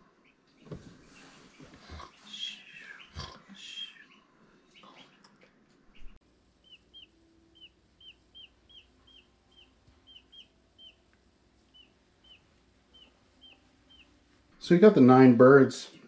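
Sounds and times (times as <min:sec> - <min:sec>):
chicks peeping: 0:06.0 - 0:14.4.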